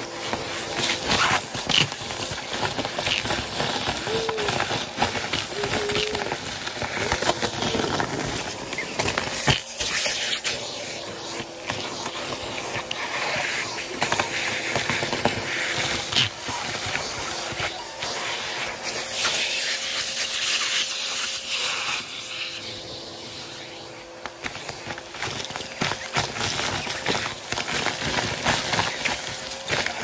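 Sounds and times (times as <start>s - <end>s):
vacuum cleaner suction hiss: 0.0s - 30.0s
small debris clicking and rattling: 24.2s - 30.0s.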